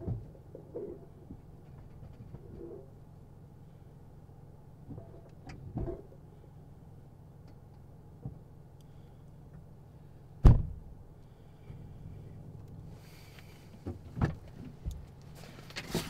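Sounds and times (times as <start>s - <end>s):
car engine idling: 0.0s - 15.8s
car trunk slamming shut: 10.4s - 10.8s.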